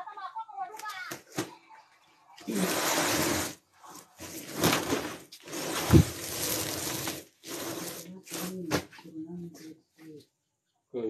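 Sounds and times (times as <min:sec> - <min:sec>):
bamboo mat slats rustling and clattering: 0:04.2 - 0:09.0.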